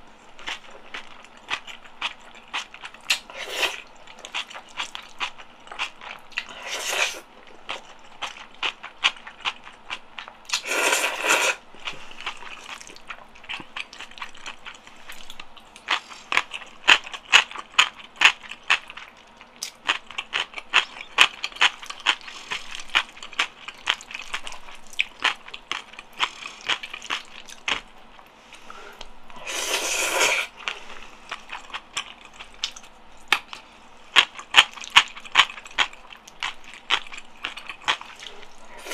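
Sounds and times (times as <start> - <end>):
wet sticky chewing: 0.4 - 38.9
noodle slurps: 3.1 - 3.8, 6.5 - 7.2, 10.5 - 11.6, 29.4 - 30.6, 38.2 - 38.9.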